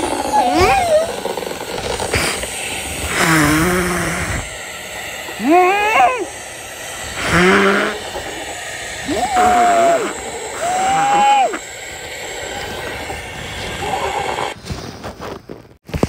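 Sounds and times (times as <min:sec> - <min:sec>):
muffled mmmph cries: 0:00.0 - 0:02.5, 0:05.2 - 0:06.5, 0:07.1 - 0:11.7.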